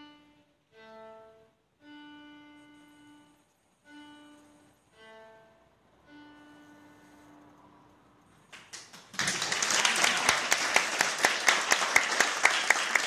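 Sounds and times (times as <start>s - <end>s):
audience applause: 8.6s - 13.0s.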